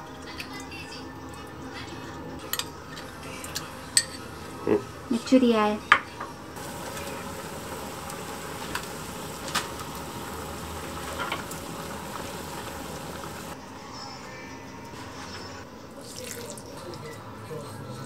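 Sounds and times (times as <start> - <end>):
water boiling in a pot: 6.6 - 13.6, 16.0 - 17.1.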